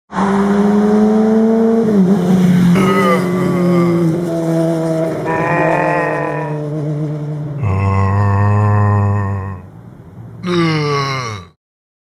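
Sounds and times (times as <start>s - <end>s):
motorcycle engine revving: 0.1s - 8.0s.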